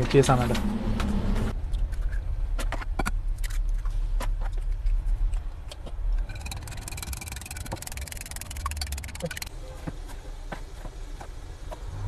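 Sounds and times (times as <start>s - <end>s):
chopsticks beating eggs in bowl: 6.3s - 9.5s.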